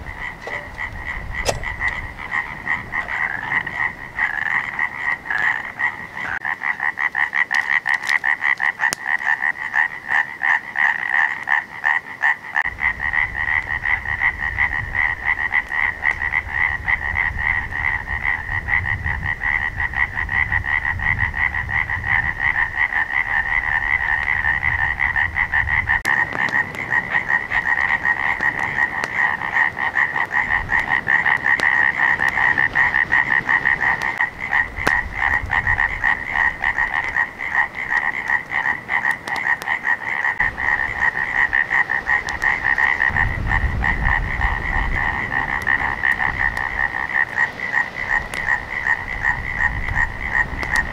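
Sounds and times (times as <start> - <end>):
low rumble: 0.0 - 4.2
frogs calling in chorus: 0.0 - 50.9.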